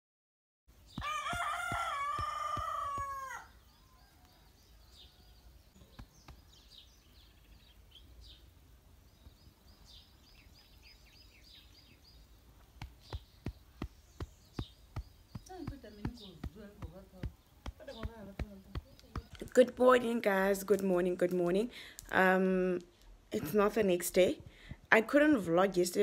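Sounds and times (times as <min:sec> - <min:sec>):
rooster crowing: 0:01.0 - 0:05.6.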